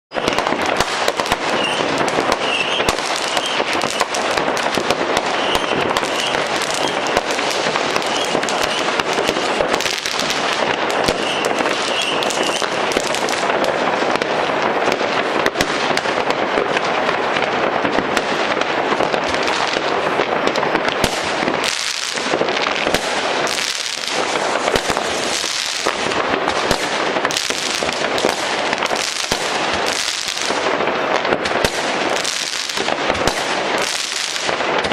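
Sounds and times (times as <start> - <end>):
fireworks crackling and banging: 0.1 - 34.9.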